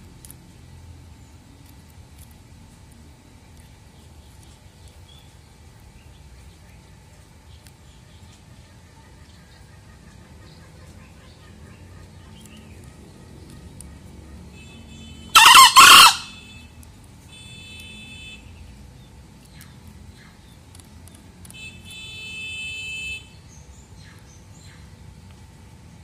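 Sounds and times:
junglefowl crowing: 15.3 - 16.5.

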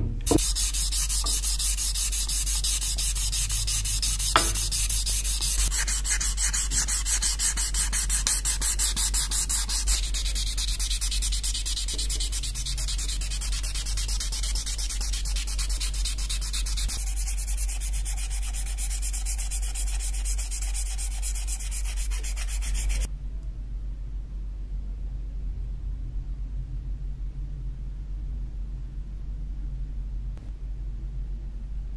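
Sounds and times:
low steady hum: 0.0 - 31.9
sanding strokes on a knife: 0.3 - 23.1.

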